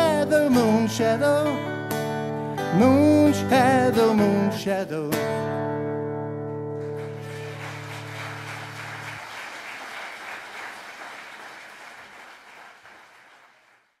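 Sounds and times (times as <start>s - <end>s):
audience applause: 6.8s - 14.0s.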